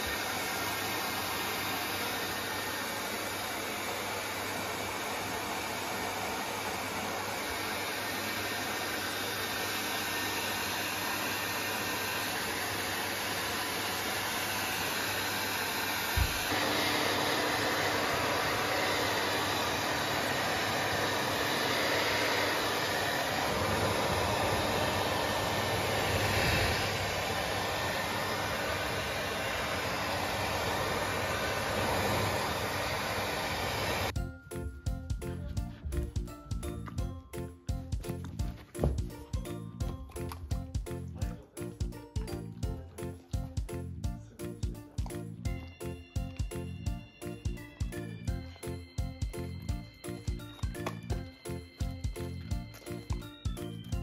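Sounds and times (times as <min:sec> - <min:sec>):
hair dryer blowing: 0:00.0 - 0:34.2, 0:45.5 - 0:54.0.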